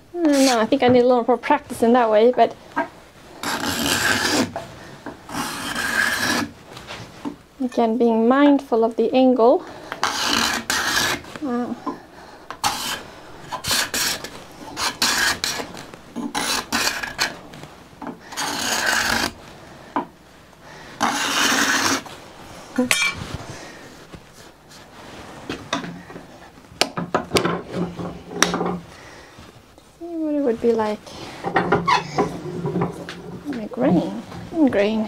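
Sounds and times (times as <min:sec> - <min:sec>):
card scraper scraping wood: 0:03.4 - 0:04.6, 0:05.3 - 0:06.6, 0:10.0 - 0:11.2, 0:12.6 - 0:17.4, 0:18.3 - 0:19.4, 0:21.0 - 0:22.1.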